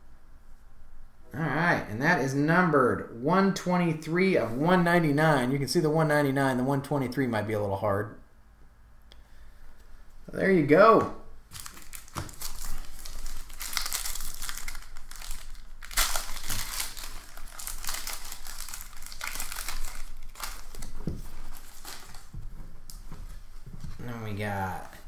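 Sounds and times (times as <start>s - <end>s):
foil wrapper crinkling: 11.5s - 23.0s.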